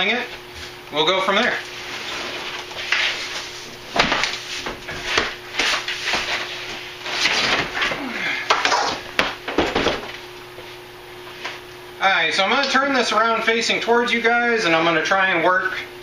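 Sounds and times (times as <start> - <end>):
cardboard scraping: 1.6 - 8.0.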